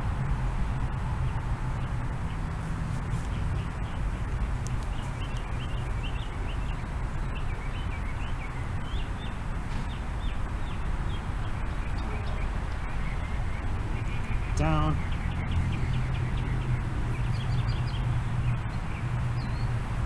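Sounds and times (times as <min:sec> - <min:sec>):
low background rumble: 0:00.0 - 0:08.0
birds chirping: 0:00.0 - 0:20.0.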